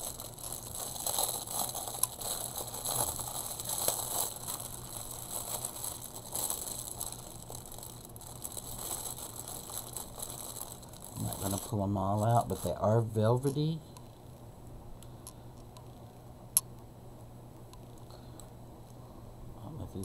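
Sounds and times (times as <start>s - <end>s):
plastic packaging crinkling: 0.0s - 13.8s.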